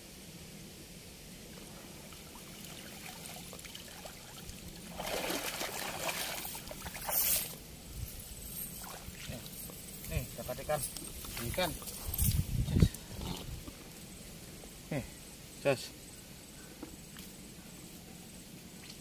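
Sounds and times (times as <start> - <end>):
water pouring off a net: 2.1 - 7.6.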